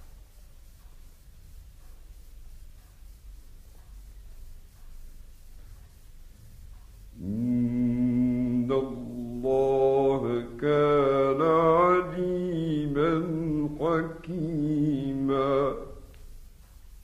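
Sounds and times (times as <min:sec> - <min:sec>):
man chanting recitation: 0:07.1 - 0:16.2.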